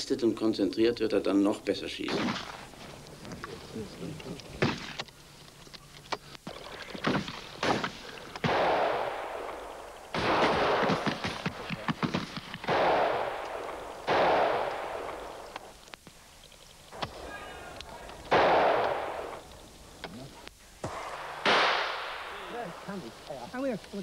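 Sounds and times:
shotgun shots: 2.0s - 2.7s, 7.0s - 15.8s, 18.3s - 19.4s, 20.8s - 22.9s
faint sharp cracks: 2.0s - 23.4s.

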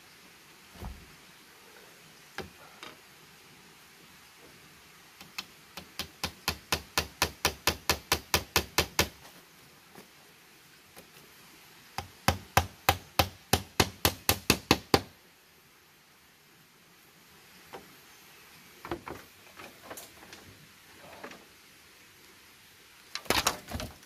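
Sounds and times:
hammer striking bamboo: 5.3s - 9.2s, 12.0s - 15.1s.

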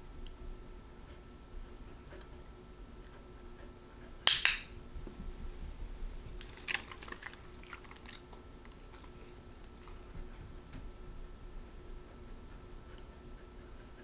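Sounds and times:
dog chewing treat: 6.4s - 10.3s.

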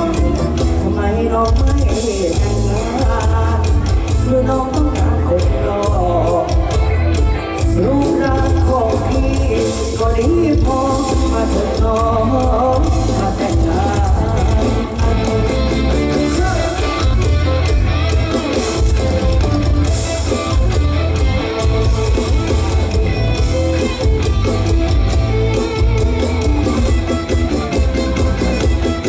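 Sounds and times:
electric guitar: 0.0s - 29.0s
live band playing loud: 0.0s - 29.0s.

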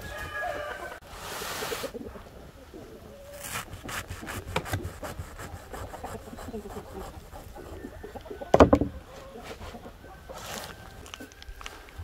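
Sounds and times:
knife sawing through wheatgrass roots: 3.3s - 8.0s
loud thump: 8.5s - 9.0s.

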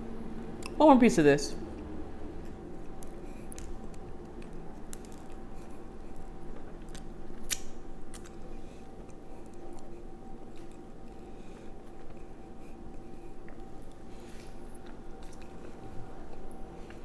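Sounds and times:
chewing soft pretzel: 1.7s - 17.0s
mouth clicks and smacks: 2.8s - 8.4s.

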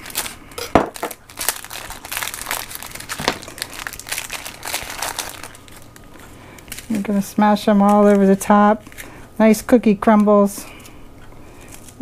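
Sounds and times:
cookie wrapper crinkling: 0.0s - 9.2s, 10.0s - 12.0s.

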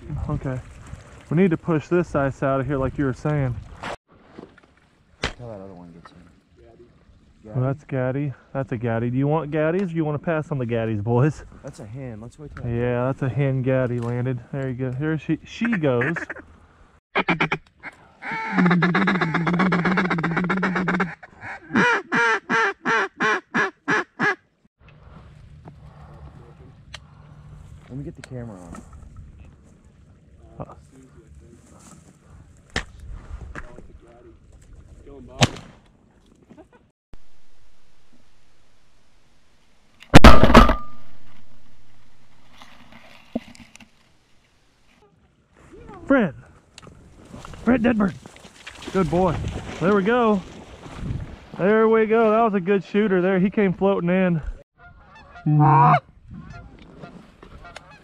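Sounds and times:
duck call quacking: 15.7s - 16.4s, 17.2s - 17.6s, 18.2s - 24.4s, 54.8s - 56.6s.

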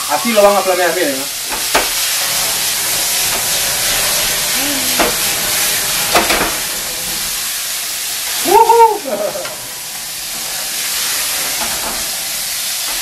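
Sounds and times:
beef sizzling in a frying pan: 0.0s - 13.0s
high-pitched voice-like cry: 4.6s - 5.0s, 8.4s - 9.4s.

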